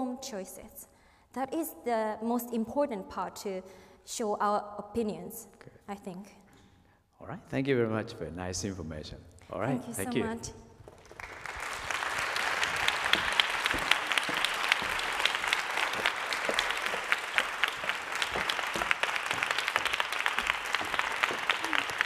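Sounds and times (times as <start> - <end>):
audience applauding: 10.8 - 22.0.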